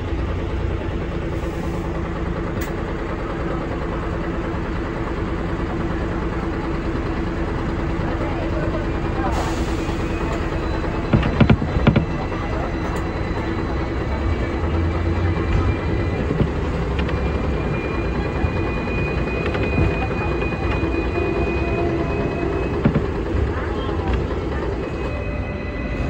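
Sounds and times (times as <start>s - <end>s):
tram rumbling on rails: 0.0s - 26.0s
sharp knocks: 11.1s - 12.2s, 22.7s - 23.3s.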